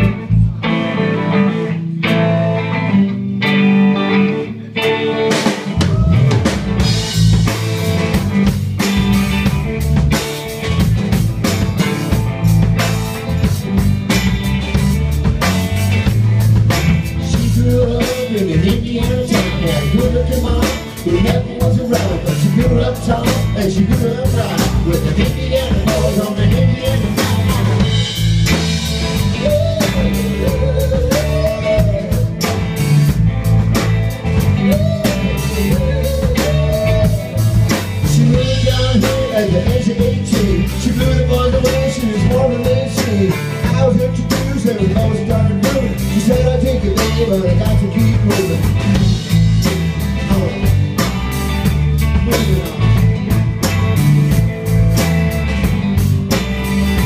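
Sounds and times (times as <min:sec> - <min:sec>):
electric bass: 0:00.0 - 0:57.0
electric guitars: 0:00.0 - 0:57.0
drum kit beat: 0:05.2 - 0:57.0
person singing: 0:05.7 - 0:06.6, 0:17.2 - 0:27.6, 0:29.2 - 0:32.6, 0:34.5 - 0:49.2, 0:52.0 - 0:53.1.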